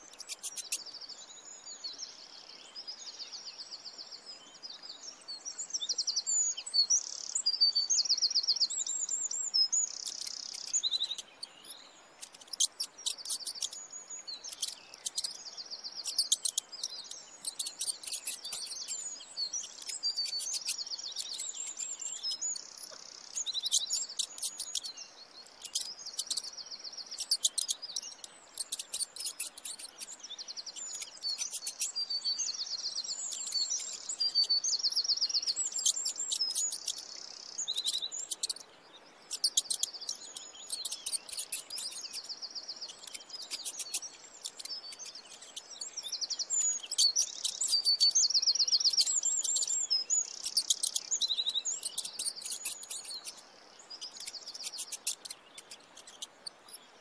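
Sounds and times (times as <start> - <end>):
small songbirds singing: 0.0 - 57.0.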